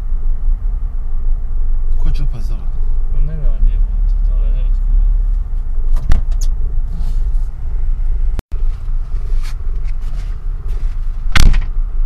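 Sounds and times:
car engine and tyre rumble: 0:00.0 - 0:12.0
sharp knock: 0:11.3 - 0:11.8.

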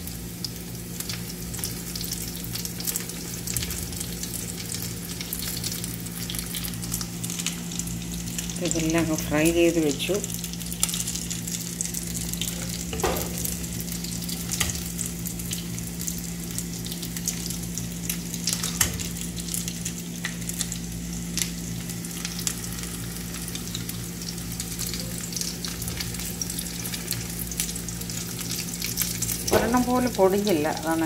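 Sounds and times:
oil sizzling with crackles: 0:00.0 - 0:31.0
low hum: 0:04.0 - 0:21.5.

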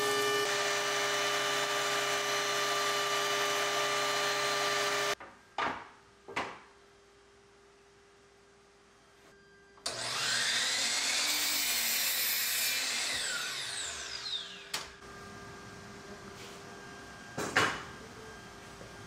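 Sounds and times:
saw cutting wooden board: 0:00.0 - 0:05.2, 0:09.9 - 0:14.8
miter saw whining: 0:09.8 - 0:15.0.

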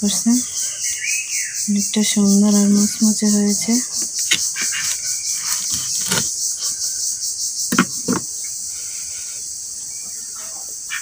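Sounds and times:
crickets chirring: 0:00.0 - 0:11.0
knife on plastic cutting board: 0:04.2 - 0:06.7.

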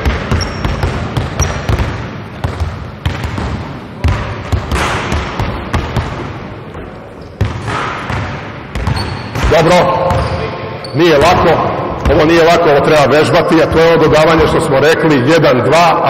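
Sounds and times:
basketballs bouncing on hardwood: 0:00.0 - 0:10.5, 0:11.2 - 0:12.4.

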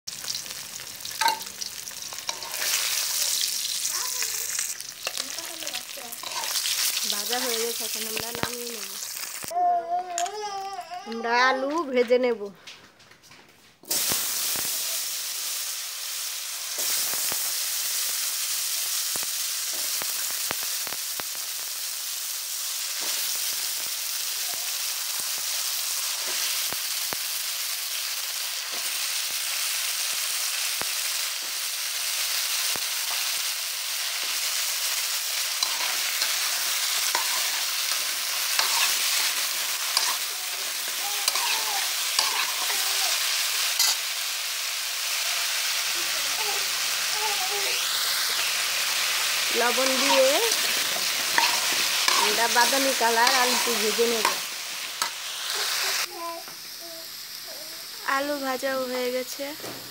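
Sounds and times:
oil popping and crackling: 0:00.1 - 0:09.6, 0:22.9 - 0:45.3, 0:45.9 - 0:56.2
potatoes sizzling in hot oil: 0:00.1 - 0:09.6, 0:13.8 - 0:59.9.

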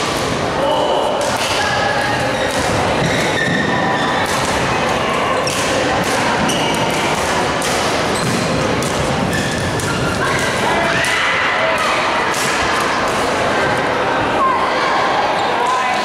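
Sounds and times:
background noise: 0:00.0 - 0:16.0
shoes squeaking on court: 0:02.3 - 0:04.2, 0:06.4 - 0:07.0, 0:08.1 - 0:10.4.

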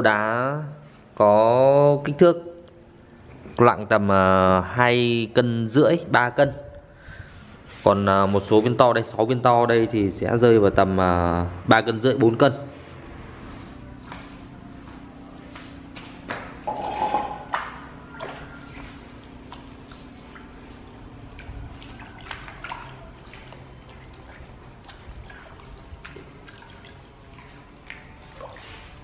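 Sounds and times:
water splashing in plastic basin: 0:16.3 - 0:29.0.

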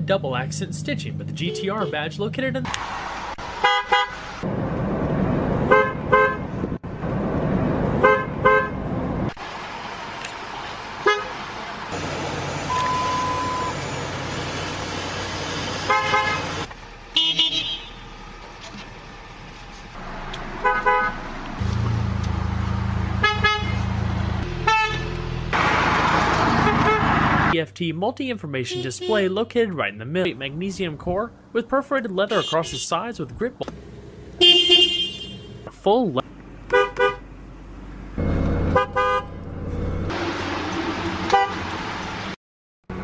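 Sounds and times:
car horn toots: 0:01.4 - 0:02.1, 0:03.6 - 0:04.2, 0:05.7 - 0:06.5, 0:11.0 - 0:11.4, 0:15.9 - 0:16.6, 0:17.2 - 0:18.0, 0:20.6 - 0:25.3, 0:26.5 - 0:27.2, 0:28.7 - 0:29.2, 0:32.3 - 0:32.8, 0:34.4 - 0:35.5, 0:36.7 - 0:37.2, 0:38.7 - 0:39.4, 0:41.3 - 0:41.6
engine hum inside car: 0:04.4 - 0:27.6
steady beep: 0:12.7 - 0:13.8.

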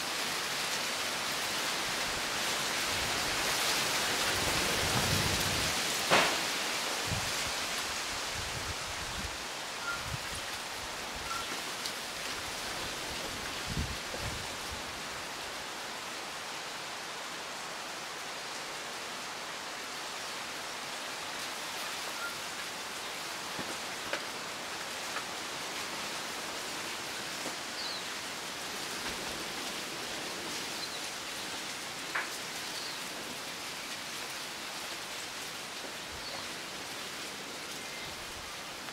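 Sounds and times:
wind rustling leaves: 0:00.0 - 0:38.9
faint bird chirps: 0:22.1 - 0:22.5.

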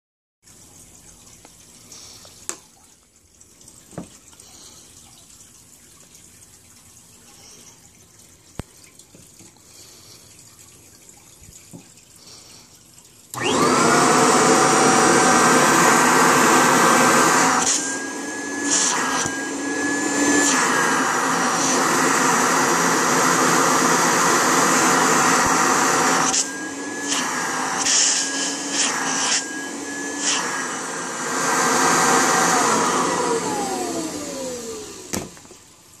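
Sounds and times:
vacuum cleaner motor whine: 0:13.4 - 0:35.5.

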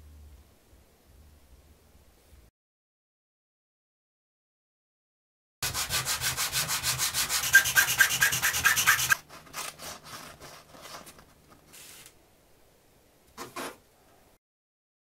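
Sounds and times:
wood scraping on sandpaper: 0:05.6 - 0:11.2
paper rustling: 0:08.2 - 0:12.1.

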